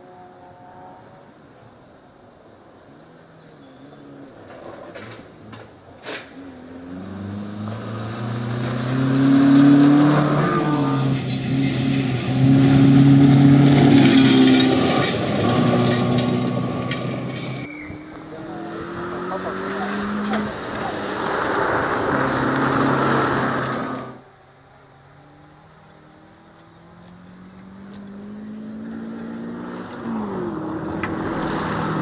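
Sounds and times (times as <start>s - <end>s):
gravel spraying under tyres: 4.3s - 24.2s, 25.3s - 32.0s
rally car engine at high revs: 6.4s - 24.2s, 25.1s - 32.0s.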